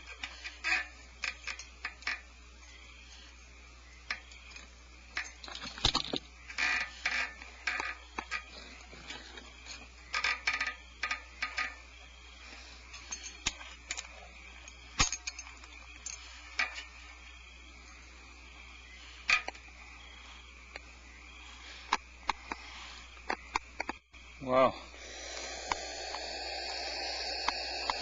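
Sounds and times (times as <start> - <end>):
steady low hum: 0.0 - 28.0
sharp clicks and ticks: 25.0 - 28.0.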